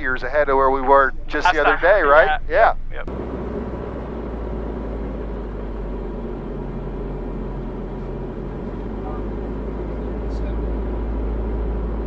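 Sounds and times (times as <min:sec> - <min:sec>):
airplane engine and propeller drone: 0:03.1 - 0:12.0.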